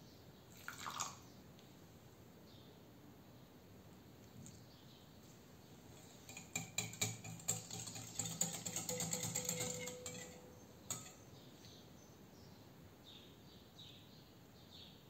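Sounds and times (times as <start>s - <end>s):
whisk scraping glass bowl: 6.0s - 11.2s.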